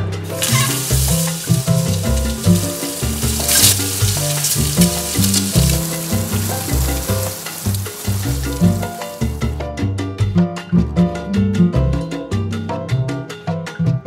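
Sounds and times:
background music with bass line: 0:00.0 - 0:14.0
eggs sizzling in hot oil: 0:00.2 - 0:09.6
wooden spatula turning food: 0:00.3 - 0:09.5.

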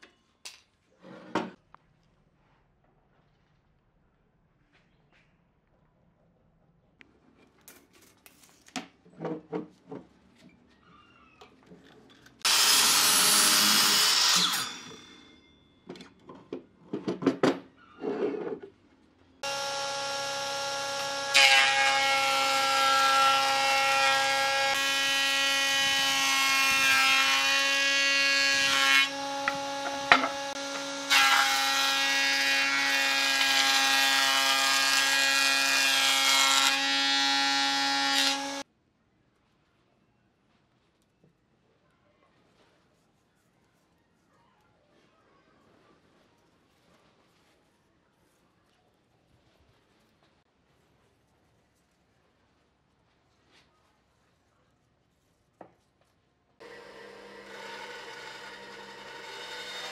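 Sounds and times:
miter saw cutting board: 0:12.5 - 0:15.1, 0:19.4 - 0:38.6, 0:56.6 - 0:59.9
woodworking machine humming: 0:19.4 - 0:33.8, 0:56.6 - 0:59.9
planer cutting board: 0:19.4 - 0:38.6, 0:56.6 - 0:59.9.

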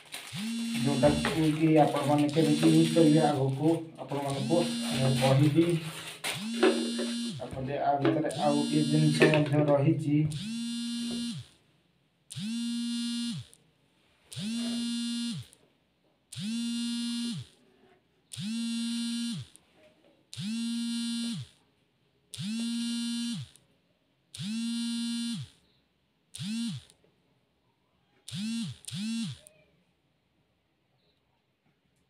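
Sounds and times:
buzzer beeping in long tones: 0:00.2 - 0:11.6, 0:12.3 - 0:13.6, 0:14.3 - 0:15.6, 0:16.3 - 0:17.6, 0:18.3 - 0:19.6, 0:20.3 - 0:21.6, 0:22.4 - 0:23.6, 0:24.4 - 0:25.6, 0:26.4 - 0:27.0, 0:28.3 - 0:29.5.

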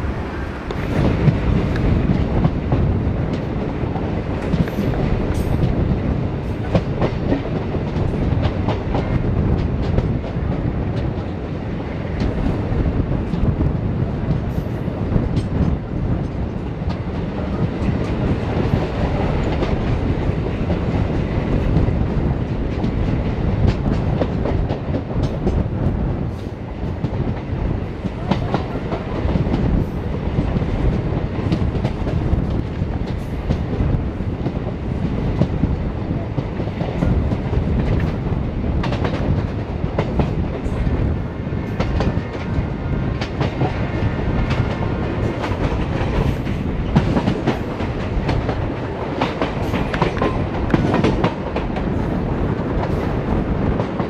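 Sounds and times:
train running rumble: 0:00.0 - 0:54.0
train wheels clattering over rail joints: 0:14.2 - 0:54.0.

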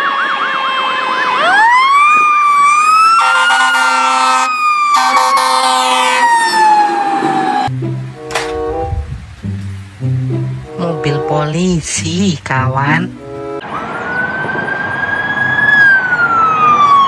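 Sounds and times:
fast yelping siren: 0:00.0 - 0:07.7, 0:13.6 - 0:17.0
wailing siren: 0:00.0 - 0:09.0, 0:13.2 - 0:17.0
air horn blasts: 0:03.2 - 0:06.5, 0:08.1 - 0:09.1.

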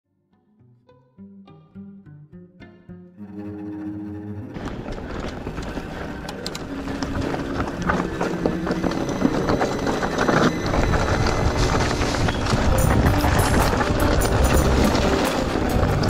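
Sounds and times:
bike tyre noise: 0:04.5 - 0:16.0
bike clicks and rattles: 0:04.6 - 0:16.0
wind rumble on microphone: 0:04.6 - 0:16.0.

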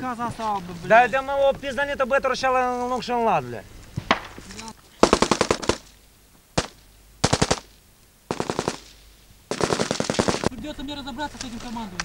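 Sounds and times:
single gunshot: 0:04.0 - 0:04.4, 0:06.6 - 0:07.7
automatic rifle fire bursts: 0:05.0 - 0:06.0, 0:06.6 - 0:10.6.

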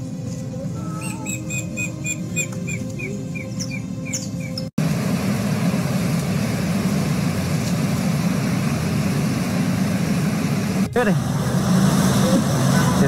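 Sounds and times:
birds chirping: 0:00.7 - 0:04.7
floodwater rushing: 0:04.8 - 0:13.0.

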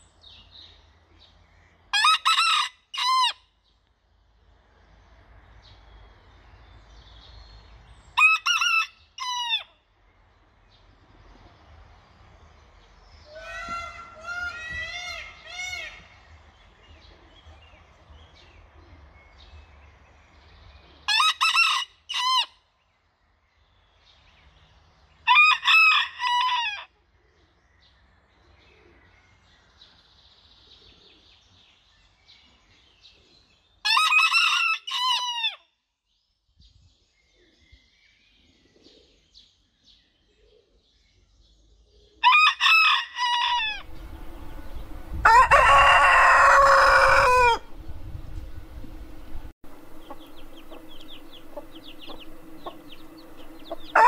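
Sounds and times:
high-pitched rooster crows: 0:01.9 - 0:03.4, 0:08.2 - 0:09.7, 0:13.3 - 0:16.0, 0:21.1 - 0:22.6, 0:25.3 - 0:26.9, 0:33.8 - 0:35.7, 0:42.2 - 0:54.0
low-pitched rooster crow: 0:25.3 - 0:26.9, 0:33.9 - 0:35.6, 0:42.2 - 0:54.0.

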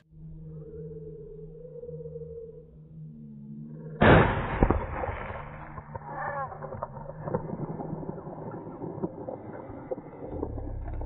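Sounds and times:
low rumbling echo: 0:00.0 - 0:11.0
slowed shotgun blast crack: 0:04.0 - 0:06.4
scattered crackles: 0:04.0 - 0:11.0.

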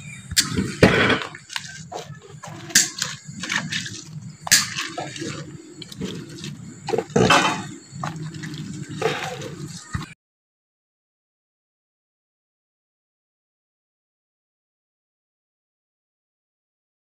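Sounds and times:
water sloshing and splashing: 0:00.4 - 0:10.2
utensils knocking and clattering: 0:06.9 - 0:08.2.

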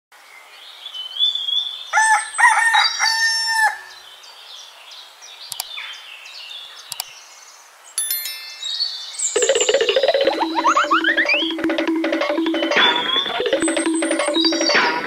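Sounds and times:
rooster crowing: 0:01.9 - 0:04.0
birds chirping: 0:05.4 - 0:07.6, 0:08.2 - 0:15.0
short clicks: 0:05.5 - 0:05.7.

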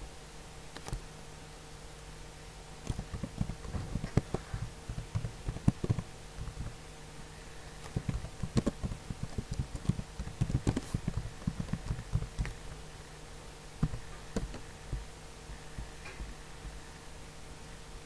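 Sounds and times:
low steady hum: 0:00.0 - 0:18.0
keyboard key taps: 0:02.9 - 0:06.7, 0:07.8 - 0:12.6, 0:13.8 - 0:15.0.

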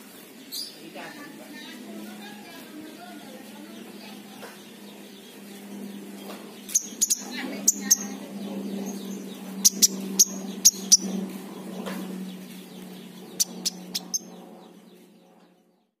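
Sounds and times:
steady low hum: 0:00.0 - 0:16.0
bird chip calls: 0:06.2 - 0:14.7.

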